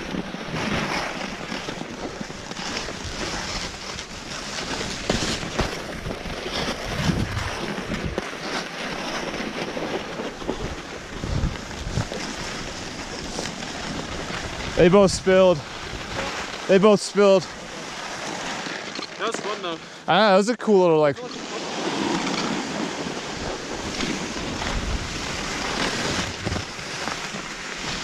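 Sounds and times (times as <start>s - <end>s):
skis scraping over snow: 0.0s - 28.0s
wind on microphone: 5.9s - 8.2s, 10.5s - 16.3s, 23.1s - 26.8s.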